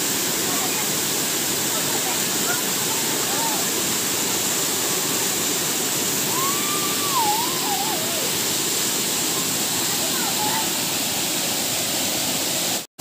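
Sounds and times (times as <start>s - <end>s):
waterfall rushing: 0.0s - 12.9s
wavering call: 6.2s - 8.4s.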